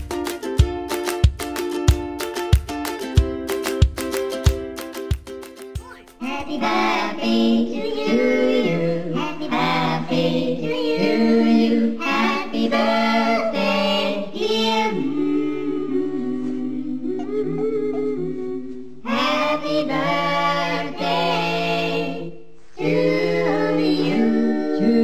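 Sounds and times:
group singing a cappella: 6.2s - 25.0s.

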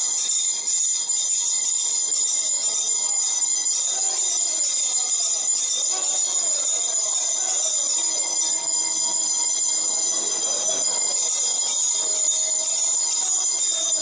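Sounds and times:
bell ringing rapidly: 5.1s - 14.0s
murmur of voices: 5.9s - 14.0s.

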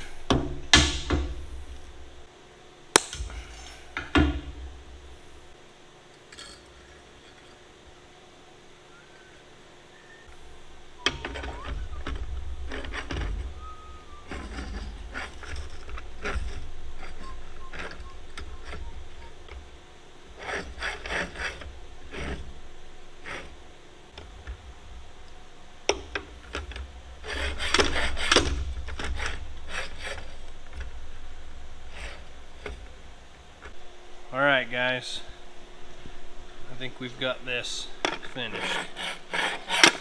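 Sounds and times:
steady low rumble: 0.0s - 5.7s, 10.3s - 20.4s, 28.6s - 38.5s
metal parts and tools handled: 6.2s - 7.7s, 14.2s - 19.6s.

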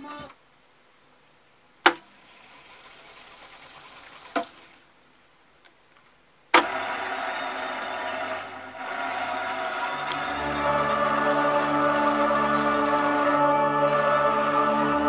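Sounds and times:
tape winding hiss: 6.6s - 13.3s
recorded music from tape deck: 6.6s - 15.0s.

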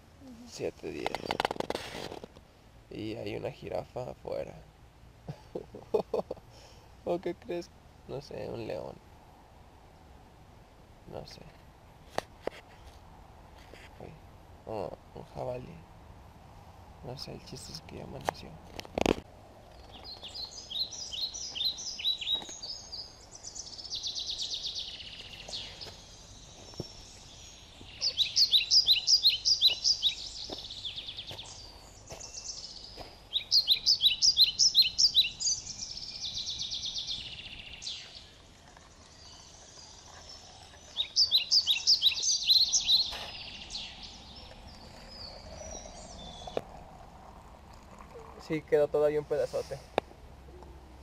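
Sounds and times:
songbird singing: 0.0s - 9.1s, 16.9s - 51.0s.

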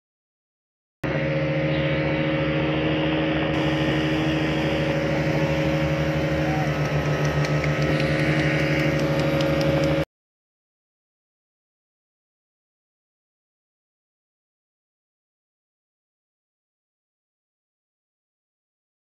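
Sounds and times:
boat engine droning: 1.0s - 10.1s.

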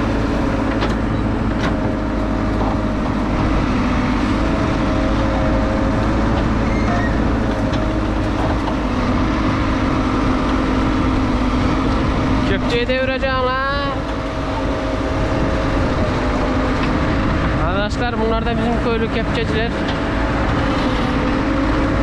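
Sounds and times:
diesel engine running: 0.0s - 22.0s
higher machine tone: 6.6s - 7.4s.

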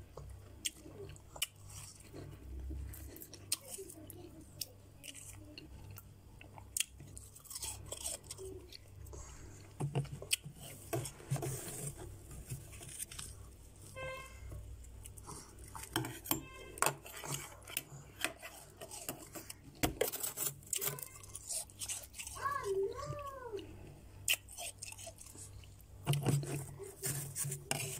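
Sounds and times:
metal spoon scraping frost: 7.2s - 8.8s, 10.4s - 14.5s, 15.3s - 23.1s, 24.3s - 27.9s.

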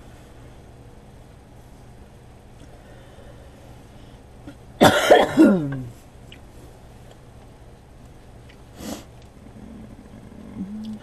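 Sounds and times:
person coughing: 4.5s - 6.0s.

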